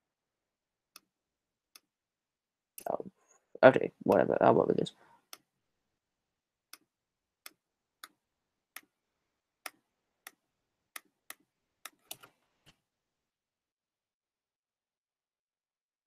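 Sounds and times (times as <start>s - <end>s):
computer mouse clicking: 6.7s - 9.0s, 9.6s - 12.4s.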